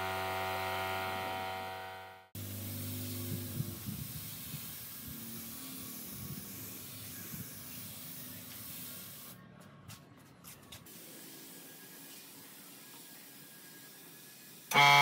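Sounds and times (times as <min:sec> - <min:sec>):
spray gun hissing: 0:02.4 - 0:09.4, 0:10.9 - 0:14.8.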